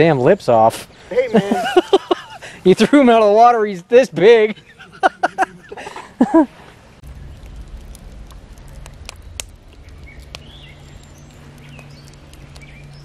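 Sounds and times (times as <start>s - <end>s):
campfire crackling: 0.0s - 13.0s
steady low hum: 7.0s - 13.0s.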